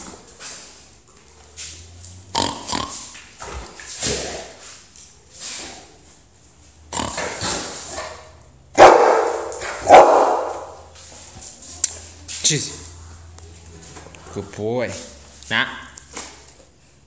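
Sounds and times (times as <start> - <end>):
dog chewing and gnawing: 0.0 - 5.2.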